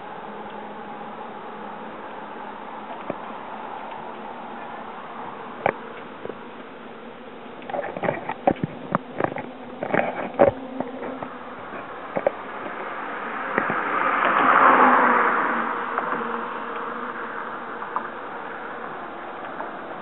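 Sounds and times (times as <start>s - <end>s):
car passing: 10.3s - 20.0s.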